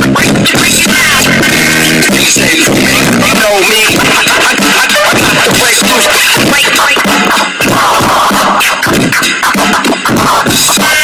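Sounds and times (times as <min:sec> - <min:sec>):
loud hip-hop music: 0:00.0 - 0:11.0
turntable scratching: 0:00.0 - 0:11.0.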